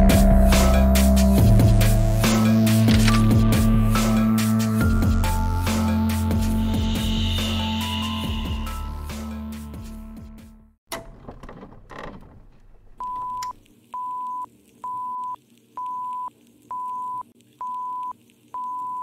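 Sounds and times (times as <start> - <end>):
music: 0.0 - 10.8.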